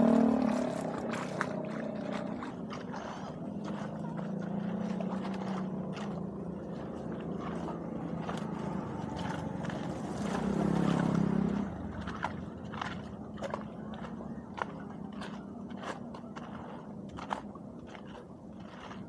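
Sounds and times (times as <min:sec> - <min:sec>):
low motor hum: 0:00.0 - 0:19.0.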